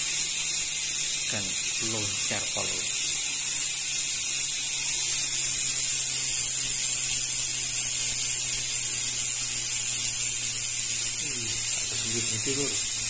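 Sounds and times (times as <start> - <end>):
bike hub clicking buzz: 0.0 - 13.0.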